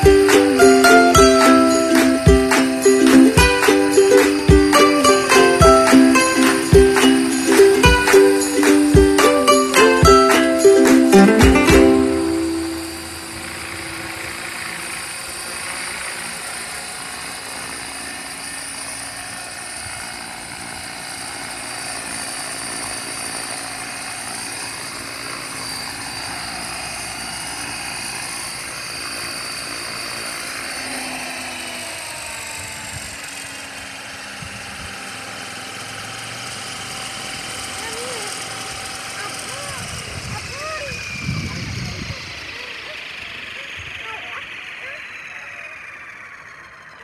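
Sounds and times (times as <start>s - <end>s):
model helicopter rotor whir: 0.0s - 47.0s.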